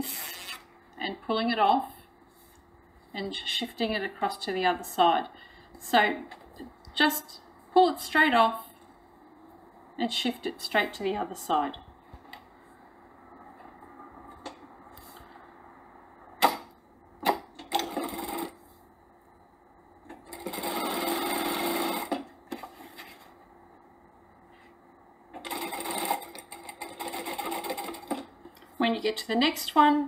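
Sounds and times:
sewing machine stitching: 20.2 - 22.2, 25.4 - 28.3.

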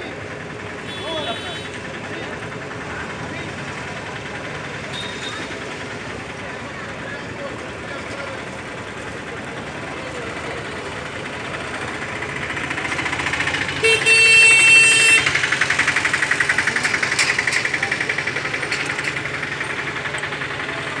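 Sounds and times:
vehicle engine pulsing: 0.0 - 21.0
vehicle horn: 0.8 - 1.8, 4.9 - 5.5, 13.8 - 15.4.

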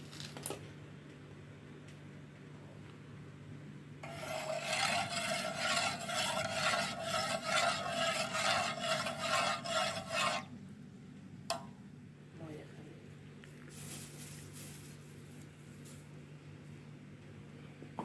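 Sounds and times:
spoon scraping metal pot: 4.0 - 10.5.

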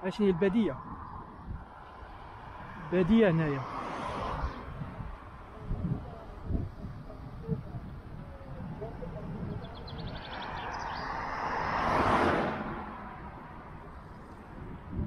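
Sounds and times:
car driving past: 1.0 - 5.5, 10.0 - 14.5.

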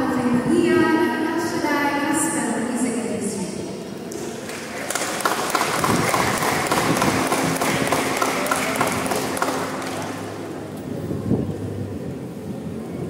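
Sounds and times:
audience applauding: 4.2 - 10.7.

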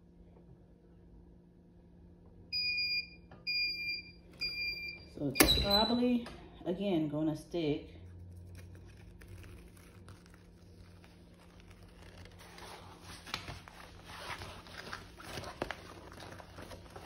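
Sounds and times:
sheet peeling rustles: 8.1 - 17.0.

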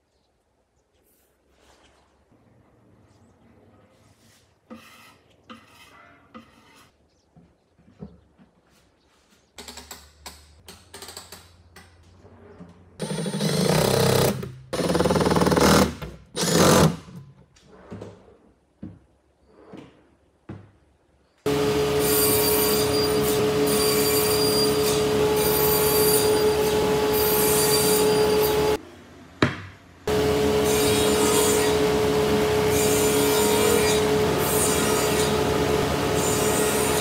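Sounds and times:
table saw humming: 21.5 - 28.8, 30.1 - 37.0.

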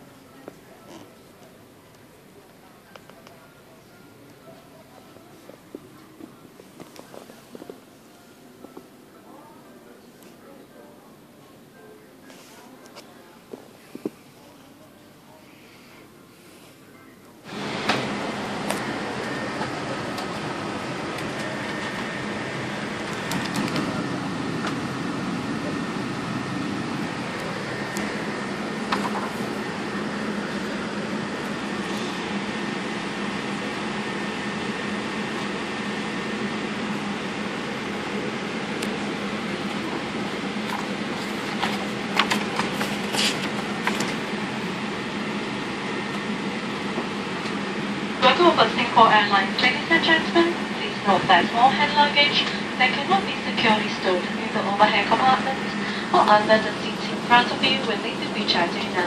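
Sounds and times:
airliner cabin air hum: 17.4 - 59.0
paper pages rustling: 41.2 - 44.2.

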